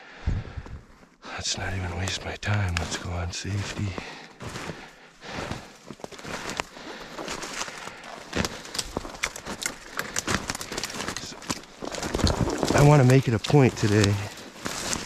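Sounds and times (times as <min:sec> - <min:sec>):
footsteps through dry leaves: 0:03.6 - 0:15.0.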